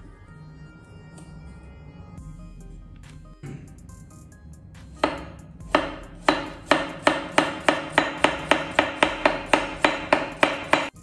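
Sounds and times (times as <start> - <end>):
knife chopping on plastic board: 5.0 - 11.0.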